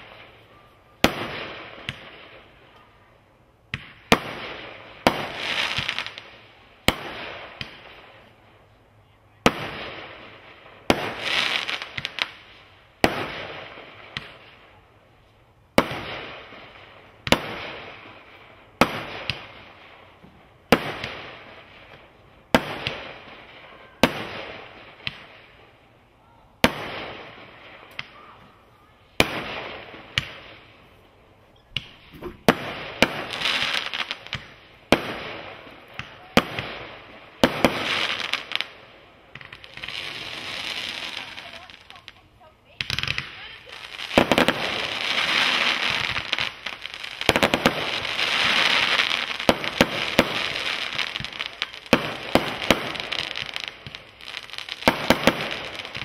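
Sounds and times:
firework crackle: 0:00.0 - 0:56.0
firework launch bangs: 0:31.7 - 0:38.7.

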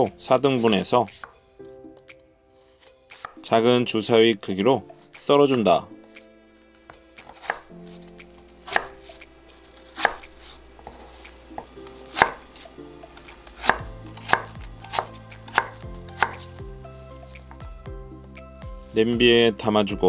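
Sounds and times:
knife chopping on wooden board: 0:00.6 - 0:01.4, 0:02.8 - 0:03.4, 0:06.9 - 0:16.6.

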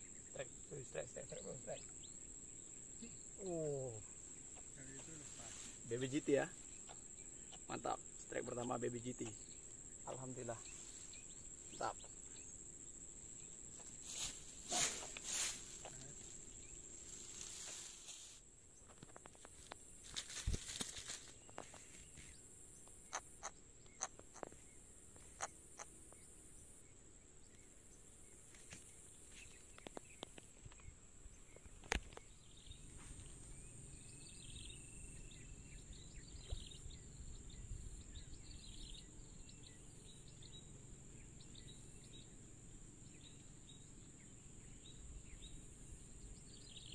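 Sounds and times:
high-pitched insect drone: 0:00.0 - 0:18.4
clicks and rustling in dry grass: 0:04.2 - 0:06.0, 0:13.7 - 0:22.4, 0:28.4 - 0:30.9, 0:31.5 - 0:33.6.

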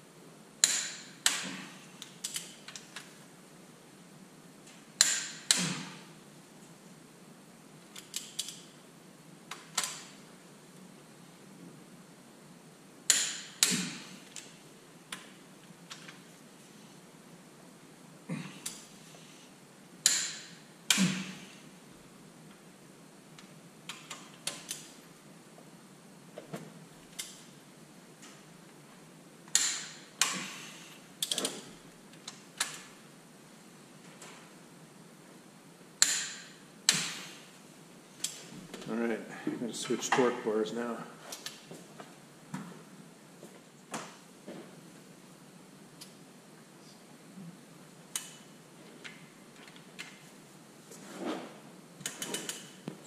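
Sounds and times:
torque wrench clicks and clanks: 0:29.5 - 0:30.4.

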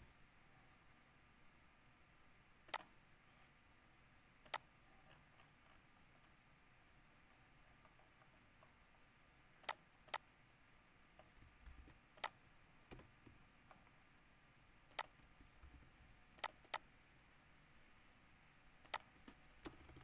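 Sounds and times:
mouse and keyboard clicks: 0:02.7 - 0:02.9, 0:04.4 - 0:06.4, 0:09.6 - 0:10.2, 0:11.2 - 0:13.8, 0:14.9 - 0:15.2, 0:16.4 - 0:16.9, 0:18.8 - 0:20.0.

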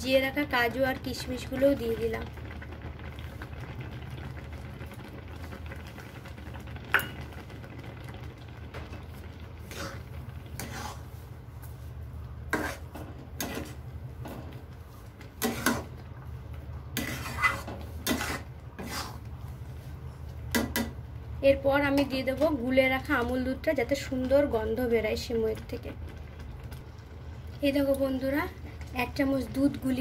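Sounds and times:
metal spoon scraping a pan: 0:09.7 - 0:11.1, 0:12.5 - 0:13.8, 0:15.4 - 0:15.9, 0:17.0 - 0:19.2.

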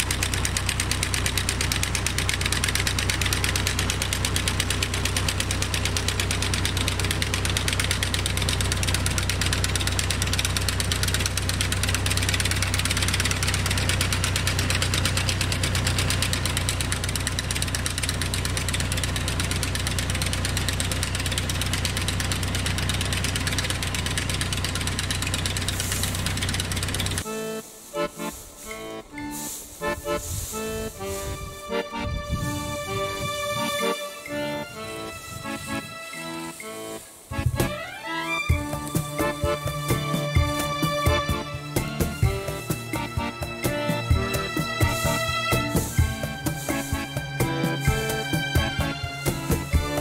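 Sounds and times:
tractor engine running under load: 0:00.0 - 0:50.0.

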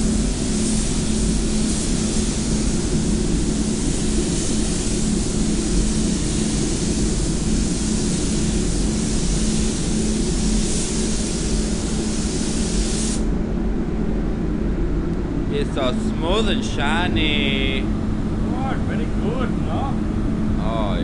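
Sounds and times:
spray gun hissing: 0:00.0 - 0:13.3
ventilation hum and rumble: 0:00.0 - 0:21.0.

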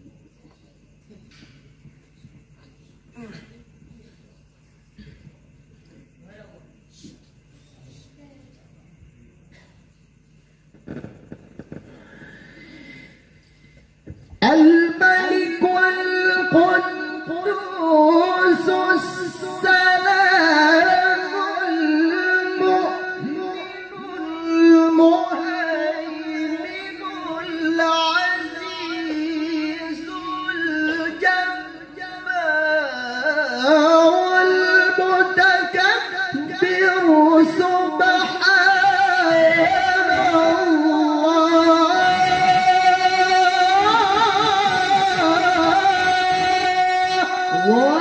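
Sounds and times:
man reciting melodically: 0:14.4 - 0:48.0.

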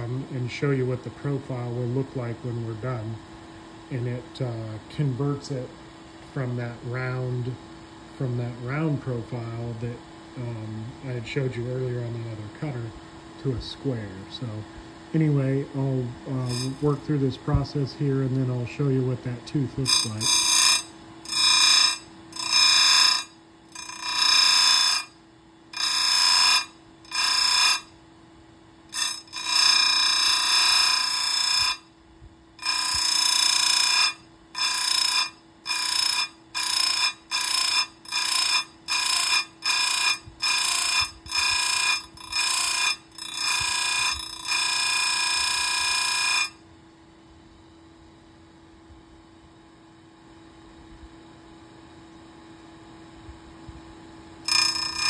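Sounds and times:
steady hum: 0:00.0 - 0:55.0
high-pitched grinding bursts: 0:16.3 - 0:17.7, 0:18.8 - 0:28.0, 0:28.9 - 0:31.9, 0:32.6 - 0:46.6, 0:54.4 - 0:55.0.

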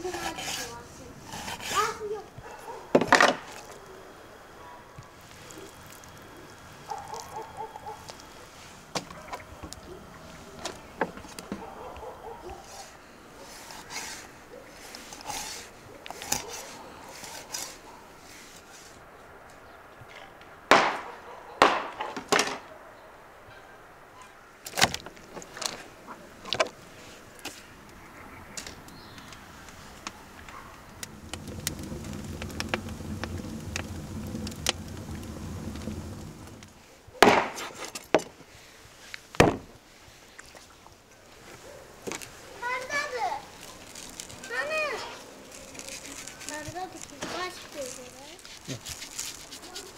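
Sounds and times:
low hum: 0:30.5 - 0:36.8.

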